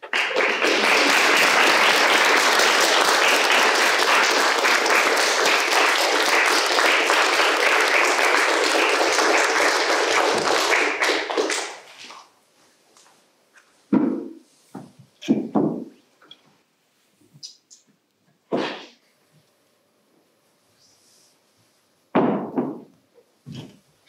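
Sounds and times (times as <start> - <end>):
audience clapping: 0.0 - 12.3.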